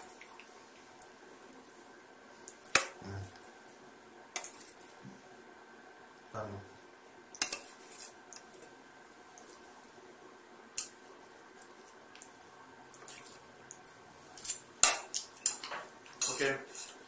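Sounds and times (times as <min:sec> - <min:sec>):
metal spoon scraping a steel plate: 0:15.4 - 0:17.0.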